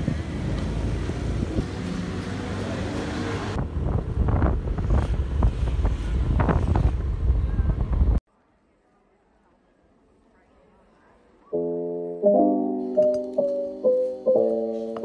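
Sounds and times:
motorbikes passing: 0:00.0 - 0:06.2
low traffic rumble: 0:00.0 - 0:08.2
road and engine rumble: 0:00.0 - 0:08.2
wind buffeting microphone: 0:03.6 - 0:08.2.

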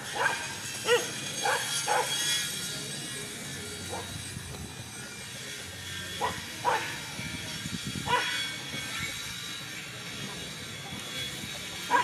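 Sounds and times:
dogs barking: 0:00.0 - 0:02.2, 0:06.2 - 0:07.0, 0:08.0 - 0:08.4.

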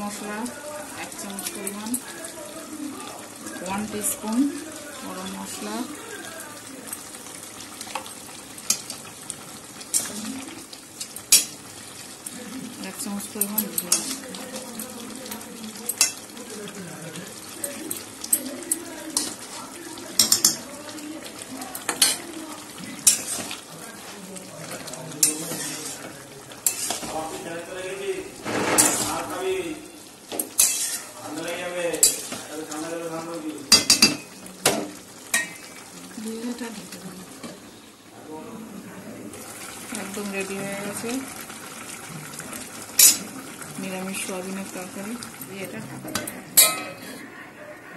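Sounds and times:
curry hissing in pan: 0:00.0 - 0:47.3
metal spatula clicking on pan: 0:13.4 - 0:14.1
spoon clinking on pan: 0:14.8 - 0:16.2, 0:20.2 - 0:20.7, 0:30.3 - 0:31.0, 0:33.7 - 0:34.4, 0:43.0 - 0:43.2, 0:46.6 - 0:47.0
spoon stirring thick curry: 0:17.5 - 0:27.6, 0:30.3 - 0:34.3.

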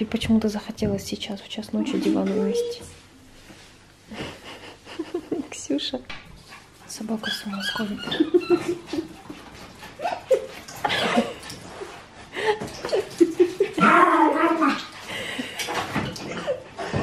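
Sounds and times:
small dog growling and yipping: 0:13.8 - 0:14.9.

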